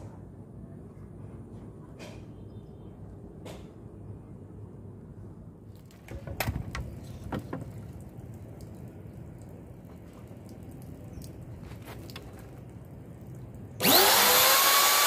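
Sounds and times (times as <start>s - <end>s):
steady low background noise: 0.0s - 13.9s
knocks and clicks of handled wood: 5.9s - 7.8s.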